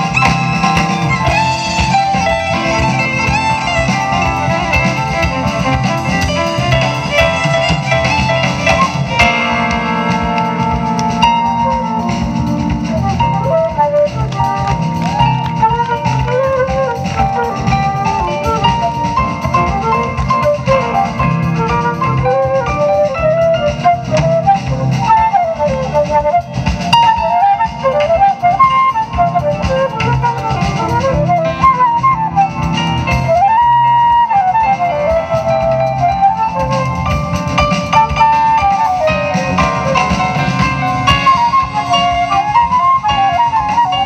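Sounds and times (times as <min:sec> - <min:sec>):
live jazz ensemble playing: 0:00.0 - 0:44.0.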